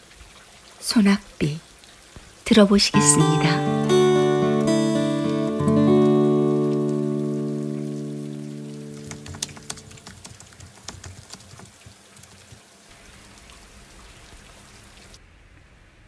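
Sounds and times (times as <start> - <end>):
raindrops ticking: 2.2 - 12.8
guitar chord: 3.0 - 9.9.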